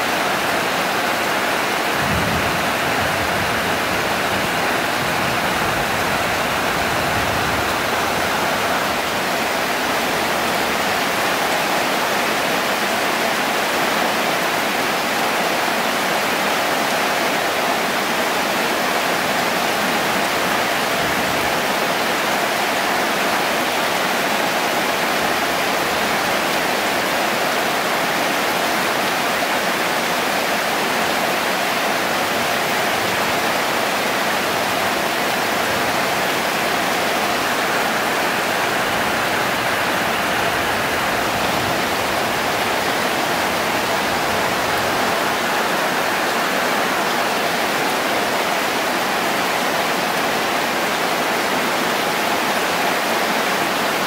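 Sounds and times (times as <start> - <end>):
rain on pond: 0.0 - 54.0.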